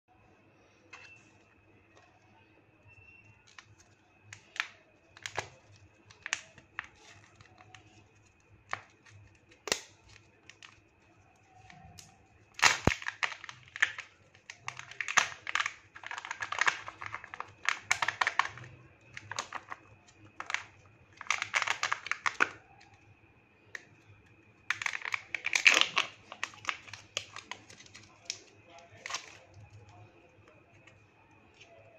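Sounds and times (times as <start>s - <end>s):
faint high whine: 0.1s - 12.6s
wrapper crinkling and tearing: 3.4s - 10.8s, 11.4s - 22.6s, 24.7s - 29.6s.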